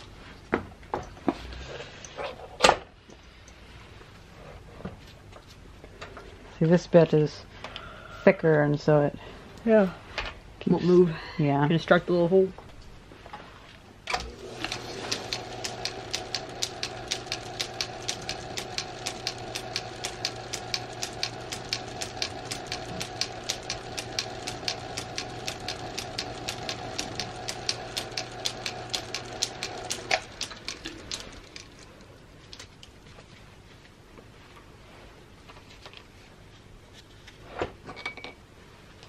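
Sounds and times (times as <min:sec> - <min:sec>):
lathe motor hum: 0:14.1 - 0:31.9
regular ticking of spinning chuck: 0:14.1 - 0:31.9.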